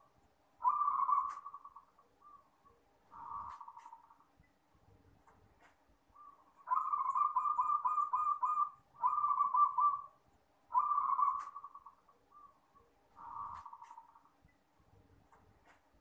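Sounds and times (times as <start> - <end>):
dove cooing: 0.6 - 2.4, 3.1 - 4.1, 6.2 - 10.1, 10.7 - 12.5, 13.2 - 14.2.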